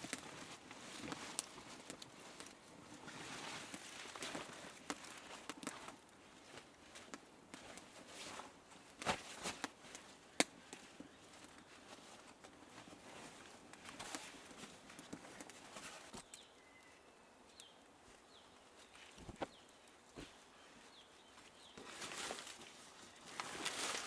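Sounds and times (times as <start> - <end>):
faint high chirps: 16.2 - 17.8.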